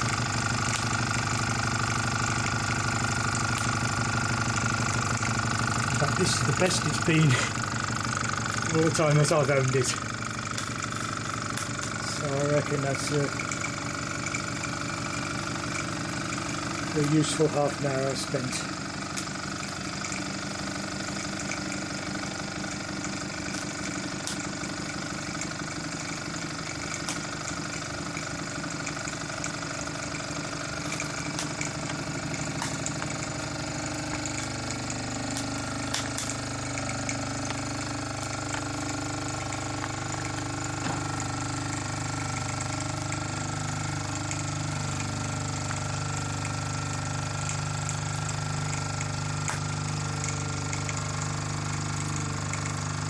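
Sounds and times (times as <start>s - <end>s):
toy steam engine running: 0.0s - 53.0s.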